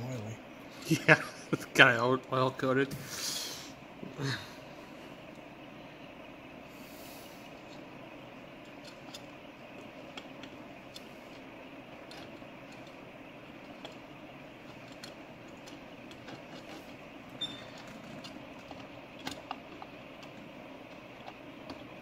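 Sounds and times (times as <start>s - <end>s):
workshop background hum: 0.0s - 22.0s
metal parts clicking and tapping: 14.6s - 22.0s.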